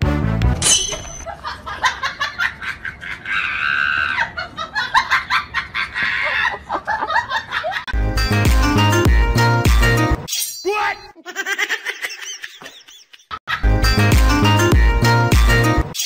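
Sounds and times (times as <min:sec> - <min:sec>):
high-pitched human laughter: 0:01.2 - 0:07.9, 0:11.2 - 0:13.7
person shrieking: 0:03.3 - 0:04.4.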